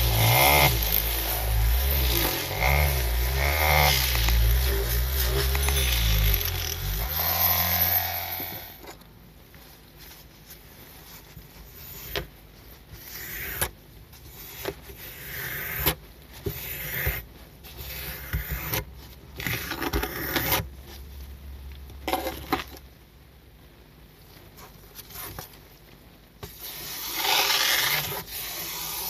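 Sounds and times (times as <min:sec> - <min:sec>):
squeegee wet scraping: 0:00.0 - 0:07.1.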